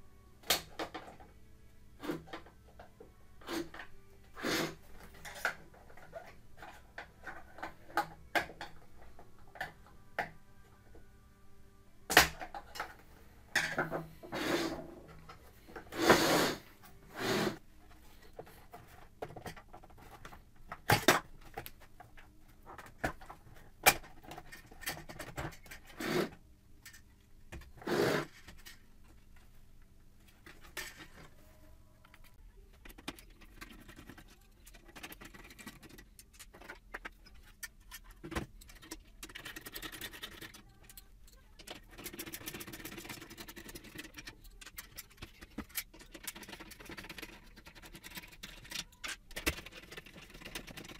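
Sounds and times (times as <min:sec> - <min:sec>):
plastic parts knocking and clicking: 0:18.3 - 0:26.0, 0:32.7 - 0:50.9.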